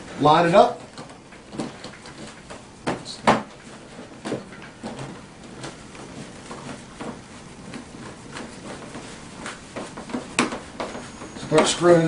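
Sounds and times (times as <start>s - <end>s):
plastic panels knocking and clicking: 9.7s - 11.8s.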